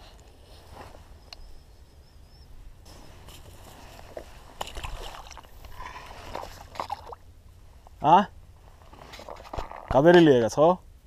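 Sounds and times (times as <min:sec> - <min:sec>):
rustling dry grass: 0:00.0 - 0:01.8, 0:02.5 - 0:10.0
water sloshing: 0:03.5 - 0:07.4.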